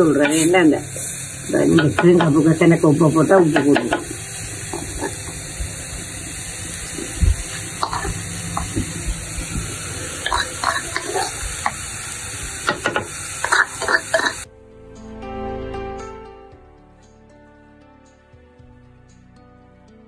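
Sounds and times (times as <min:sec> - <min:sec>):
food sizzling in a pot: 0:00.0 - 0:14.5
spatula scraping and tapping pot: 0:01.7 - 0:02.4, 0:03.5 - 0:05.4, 0:07.8 - 0:08.9.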